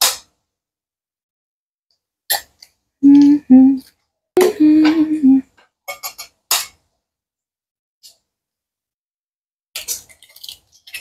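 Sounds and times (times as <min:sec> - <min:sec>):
person humming: 0:03.0 - 0:05.5.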